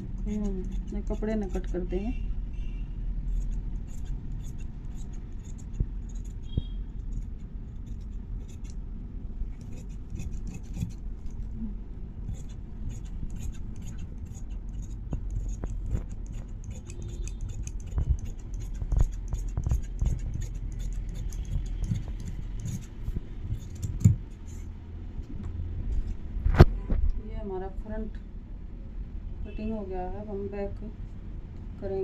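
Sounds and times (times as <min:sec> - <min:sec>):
blades scraping along cloth: 0:09.6 - 0:11.4, 0:12.3 - 0:24.6
shears snipping fabric: 0:12.3 - 0:22.9.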